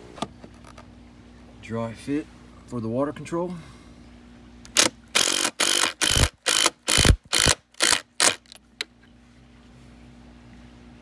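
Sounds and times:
impact driver driving screw: 4.7s - 8.6s.

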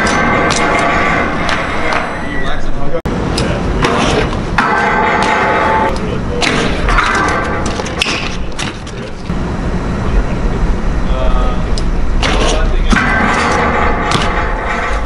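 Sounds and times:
bike thumping on concrete ledge: 12.2s - 15.0s.

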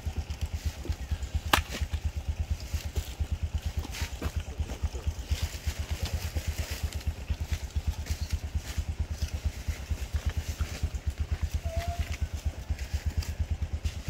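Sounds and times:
small engine idling: 0.0s - 14.0s.

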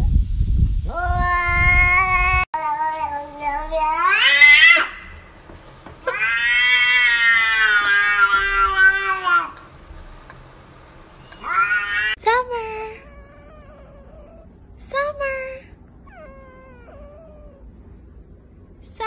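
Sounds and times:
cat yowl: 1.0s - 5.3s, 6.0s - 9.6s, 11.3s - 12.2s
cats meowing: 1.0s - 9.7s, 11.2s - 12.2s, 12.8s - 14.6s, 16.0s - 18.0s.

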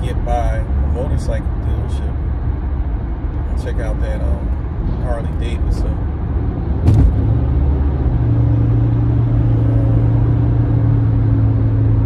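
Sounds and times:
low rumble in car cabin: 0.0s - 12.0s
short knock: 6.8s - 7.2s.

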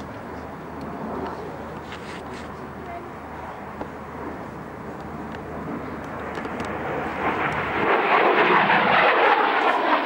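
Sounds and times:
jet fighter flying past: 3.6s - 10.0s.

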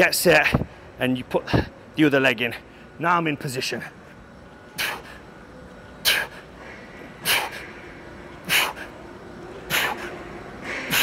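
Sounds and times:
man breathing forcefully: 7.2s - 7.8s, 8.4s - 8.9s, 9.7s - 11.0s.

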